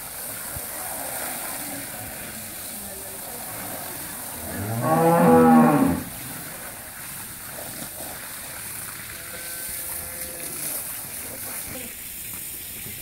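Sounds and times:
cow mooing: 4.4s - 6.2s.

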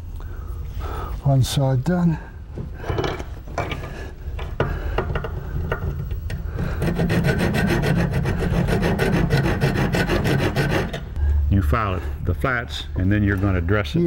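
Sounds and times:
hand file rasping on steel: 6.6s - 11.1s.

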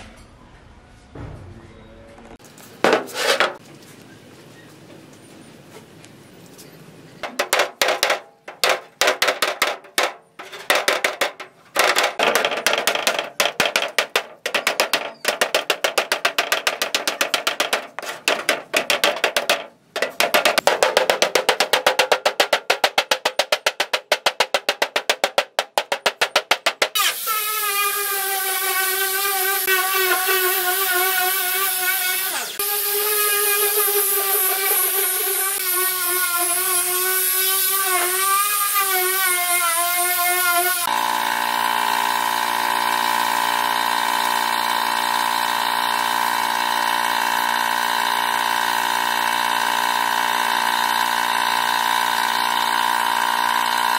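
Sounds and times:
hammer beating on metal: 7.2s - 27.0s
angle grinder whining: 26.6s - 53.9s.

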